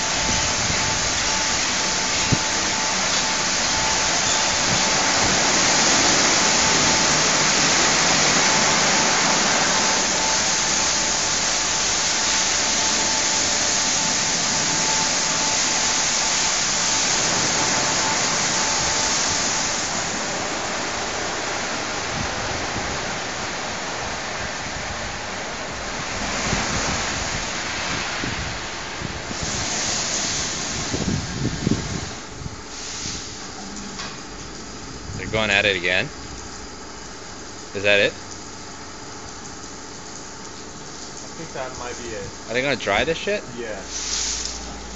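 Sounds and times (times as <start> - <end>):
faint steady whine: 0.0 - 29.6
water spraying over a car: 0.0 - 44.9.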